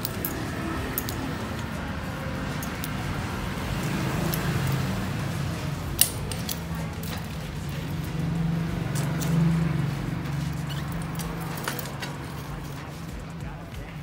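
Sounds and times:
chain shifting clicks: 0.0s - 13.4s
bicycle chain rattling over cogs: 0.0s - 14.0s
sharp chain clack: 10.2s - 13.2s.

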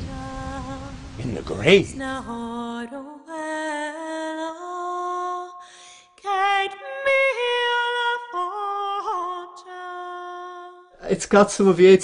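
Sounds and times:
woman singing unaccompanied: 0.0s - 11.0s.

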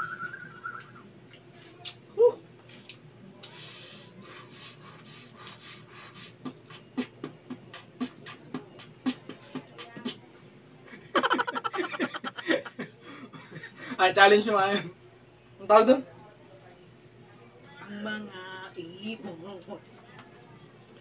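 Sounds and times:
man beatboxing: 6.2s - 10.2s, 11.2s - 12.7s.

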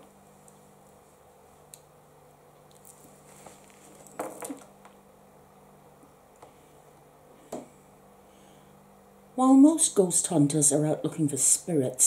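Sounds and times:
low steady hum: 0.0s - 12.0s
soft clicks and rustles: 2.5s - 5.0s.

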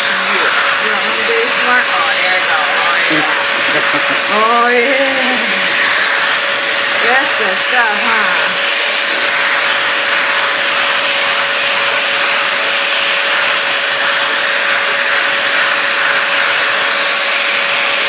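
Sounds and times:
vacuum cleaner running: 0.0s - 18.0s.

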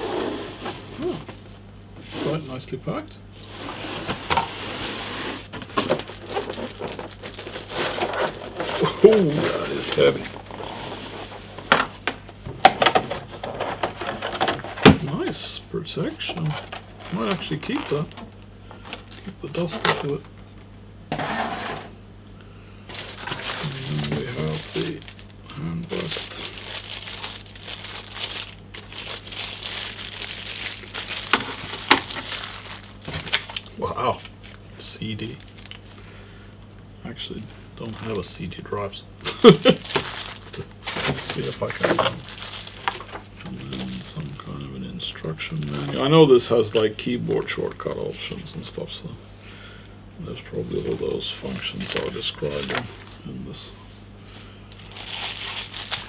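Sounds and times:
plastic packaging crinkling: 5.6s - 10.8s, 16.3s - 20.3s, 22.9s - 38.5s, 39.2s - 48.7s, 50.5s - 53.5s, 54.7s - 56.0s.

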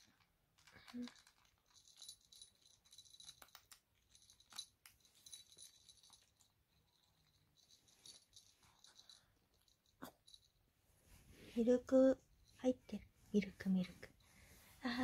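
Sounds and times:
small bell jingling: 0.9s - 10.8s.

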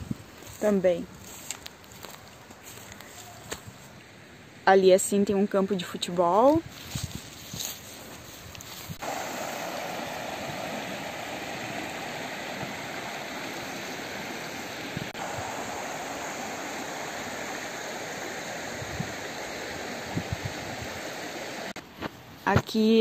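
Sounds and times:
river running over rocks: 9.0s - 21.8s.

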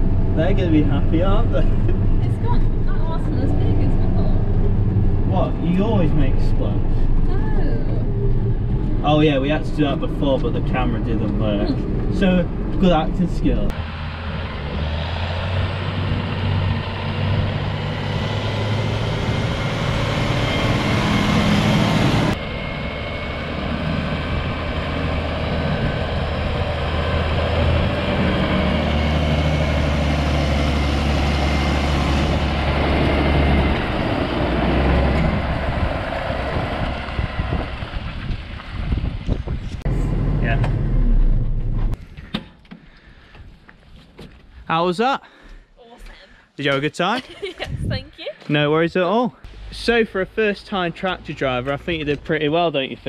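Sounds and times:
tractor diesel engine droning: 0.0s - 42.4s.

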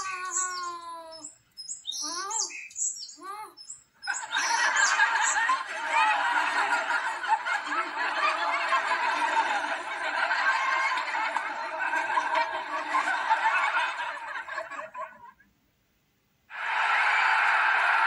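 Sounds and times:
recorded audience laughter: 4.0s - 15.4s, 16.5s - 18.0s.

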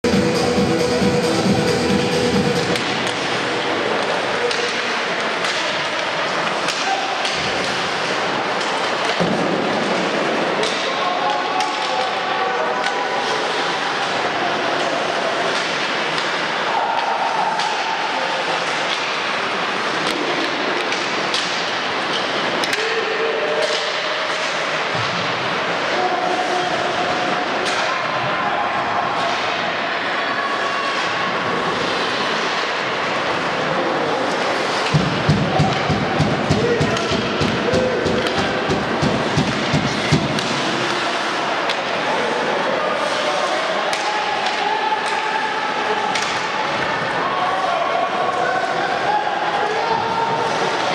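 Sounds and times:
crowd noise: 0.0s - 50.9s
hockey sticks and puck clacking: 2.6s - 49.0s, 49.6s - 50.9s
sticks and puck knocking boards: 34.8s - 41.0s.

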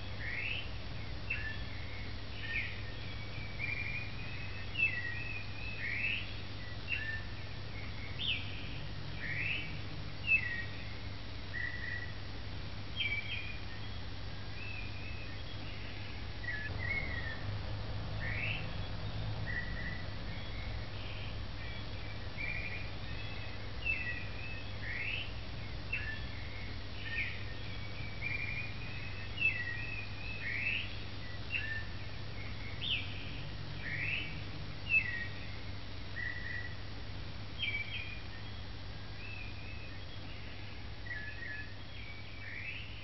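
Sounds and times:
songbird chirping and whistling: 0.0s - 12.2s, 13.0s - 17.5s, 18.2s - 25.3s, 25.9s - 36.8s, 37.6s - 43.0s.

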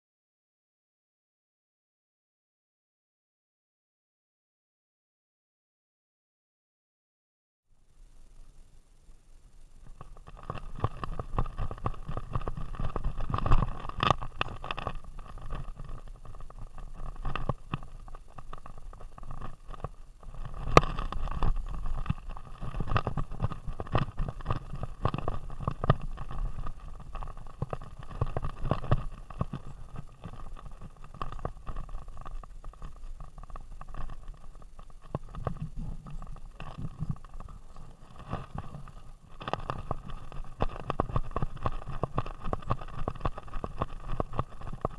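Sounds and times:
faint steady high tone: 7.7s - 11.3s
camera rumbling and knocking: 9.8s - 44.9s.

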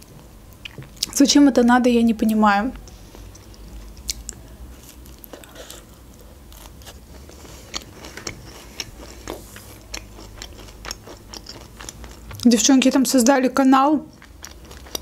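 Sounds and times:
cookie chewing crunches: 2.9s - 12.5s, 14.0s - 15.0s.

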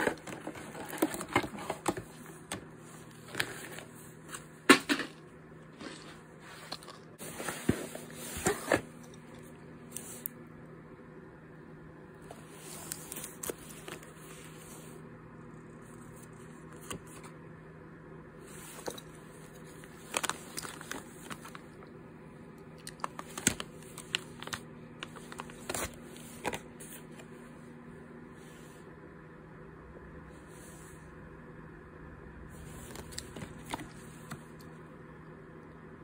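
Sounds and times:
plastic packets crinkling: 19.7s - 21.8s, 22.8s - 26.6s.

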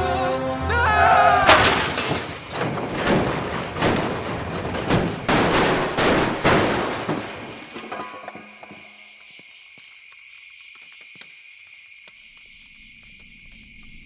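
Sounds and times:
car crashing and rolling over: 1.5s - 9.0s.

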